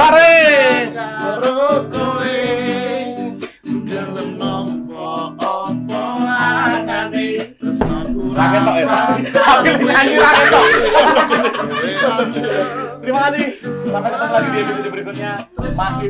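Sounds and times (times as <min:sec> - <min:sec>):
man singing with vibrato: 0:00.0 - 0:16.0
strummed acoustic guitar: 0:00.0 - 0:16.0.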